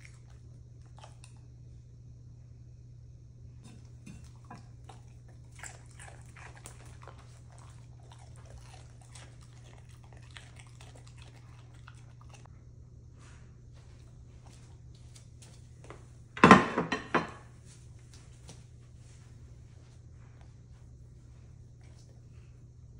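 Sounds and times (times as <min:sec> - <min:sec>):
dog crunching radish: 0:00.0 - 0:01.4, 0:03.7 - 0:12.5.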